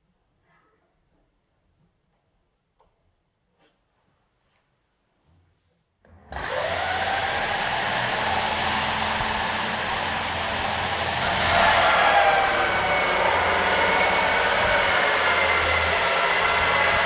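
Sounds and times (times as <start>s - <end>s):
electric drill cutting wood: 6.3s - 17.0s.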